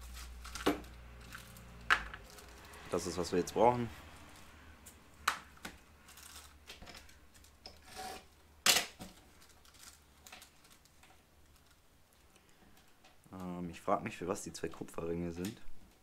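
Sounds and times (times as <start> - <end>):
packaging rustling: 0.0 - 3.2, 4.2 - 7.6, 9.1 - 13.0.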